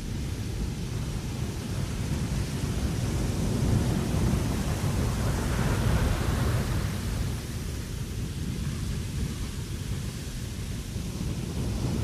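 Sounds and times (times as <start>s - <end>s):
wind blowing across deck: 0.0s - 12.0s.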